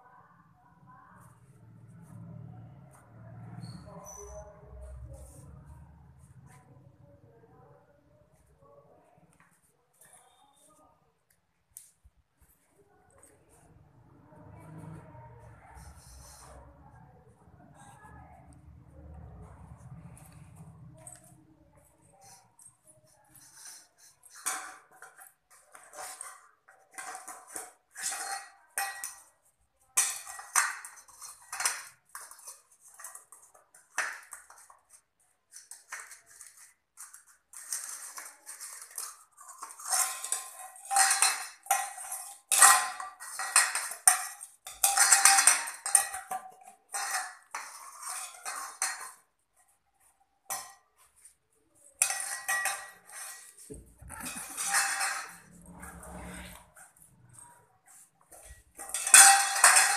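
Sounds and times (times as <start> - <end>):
metal bowl clattering on tiles: 13.1 - 59.9.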